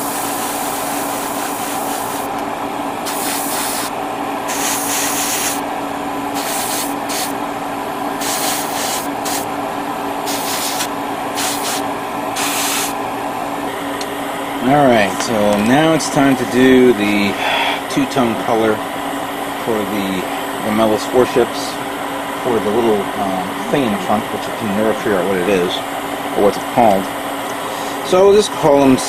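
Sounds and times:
airbrush spraying hiss: 0.0s - 2.3s, 3.0s - 3.9s, 4.5s - 5.6s, 6.3s - 7.4s, 8.2s - 9.5s, 10.2s - 13.0s
steady machine hum: 0.0s - 29.0s.

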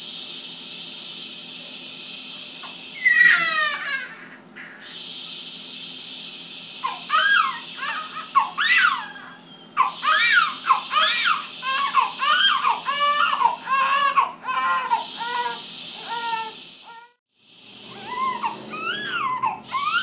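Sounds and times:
steady hiss: 0.0s - 9.1s, 9.8s - 18.2s
newborn crying in high squeals: 3.0s - 4.3s, 6.8s - 17.1s, 18.0s - 20.0s.

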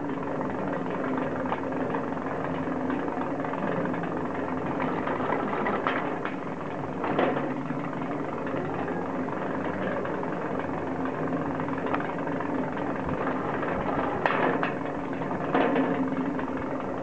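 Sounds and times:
ski lift mechanical hum: 0.0s - 17.0s.

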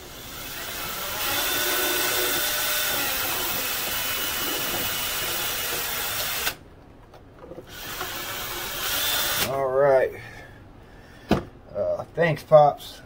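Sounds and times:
electric drill running: 0.0s - 6.6s, 7.7s - 9.5s.

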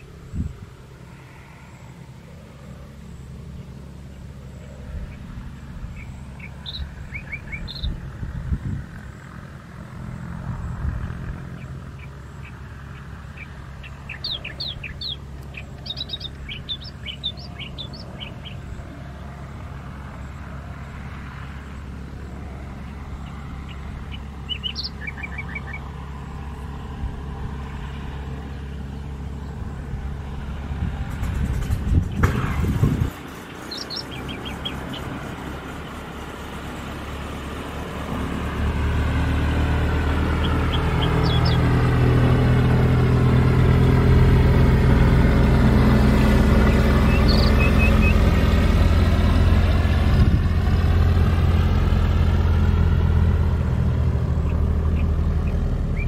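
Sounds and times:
birds chirping: 0.0s - 38.3s, 39.1s - 52.4s, 53.2s - 56.0s
light aircraft engine humming: 0.0s - 56.0s
loud rushing noise: 30.5s - 37.3s.

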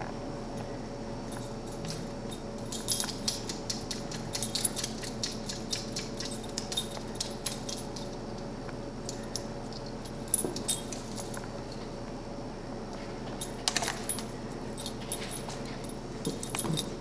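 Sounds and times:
collar tags jingling: 1.4s - 8.2s, 9.8s - 11.8s, 13.4s - 17.0s.

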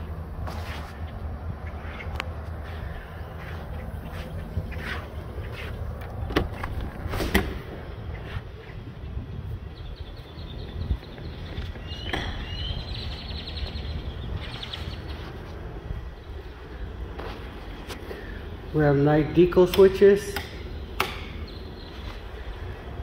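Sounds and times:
steady low rumble: 0.0s - 19.6s, 20.5s - 23.0s
bird chirping rapidly: 9.6s - 15.4s.

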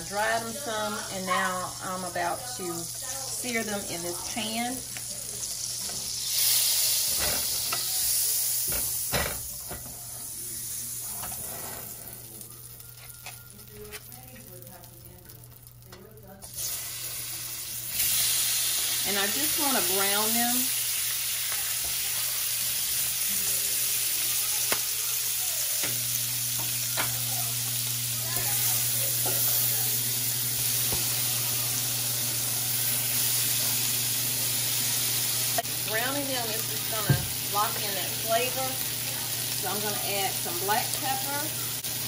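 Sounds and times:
oil and butter sizzling in a skillet: 0.0s - 42.0s.

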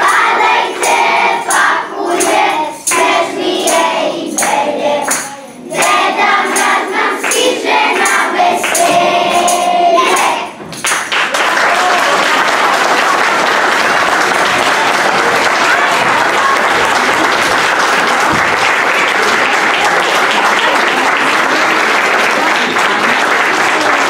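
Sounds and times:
group of voices singing: 0.0s - 10.7s
sharp percussive beat: 0.0s - 11.3s
applause: 7.2s - 8.9s, 10.2s - 24.0s.

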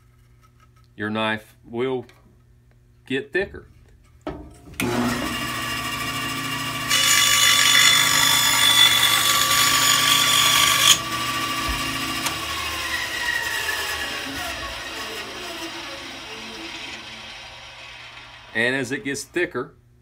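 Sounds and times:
bandsaw cutting wood: 4.8s - 19.1s
bandsaw running: 4.8s - 19.2s.

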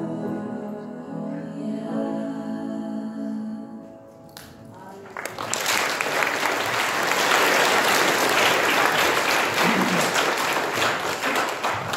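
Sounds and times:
audience applause: 5.0s - 11.9s.

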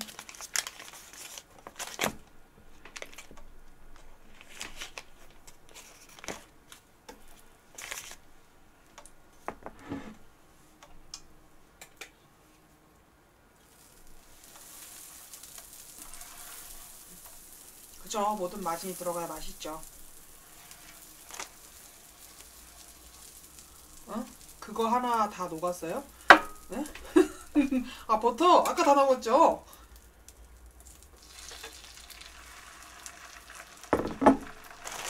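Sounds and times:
butter sizzling in a frying pan: 13.6s - 35.0s.

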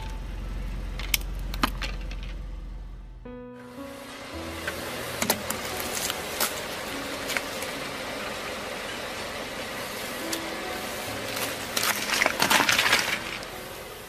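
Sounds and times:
car engine running low: 0.0s - 14.0s
fruit crunching under tyre: 11.4s - 13.5s.

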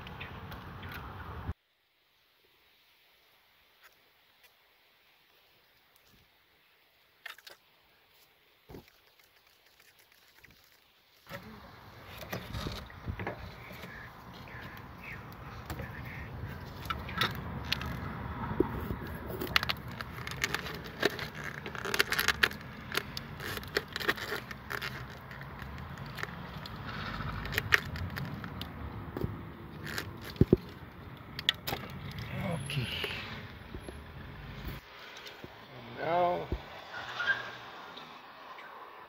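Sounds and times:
hand scraping rubber hoses: 7.3s - 35.6s
irregular clicks and rattles: 16.7s - 32.2s.

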